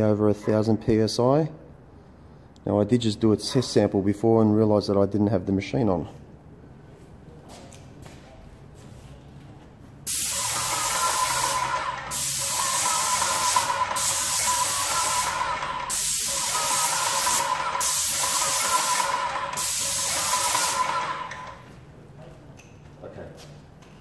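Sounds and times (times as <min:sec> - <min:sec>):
paint spray gun hissing: 0:10.1 - 0:21.6.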